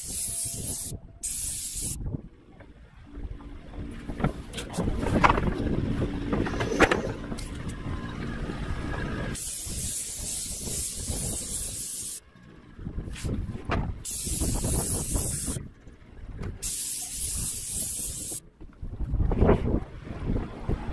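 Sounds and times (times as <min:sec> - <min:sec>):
spray gun hissing: 0:00.0 - 0:02.0, 0:09.4 - 0:12.2, 0:14.0 - 0:15.6, 0:16.6 - 0:18.4.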